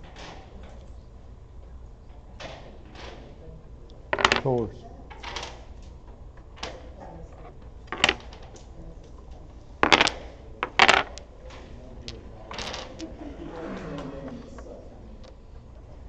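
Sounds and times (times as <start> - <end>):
domino tiles clacking on wood: 4.2 - 4.6, 6.6 - 8.7, 9.8 - 13.2.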